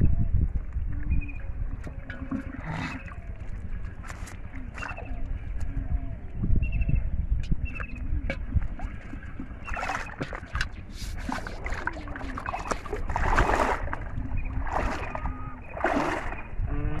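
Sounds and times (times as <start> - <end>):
water splashing around legs: 8.3 - 16.6.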